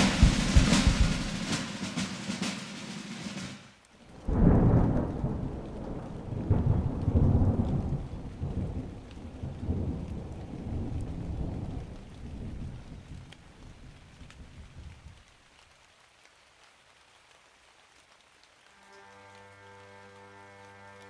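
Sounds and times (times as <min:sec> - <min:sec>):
thunder clap and rumble: 0:00.0 - 0:01.5, 0:04.2 - 0:13.3.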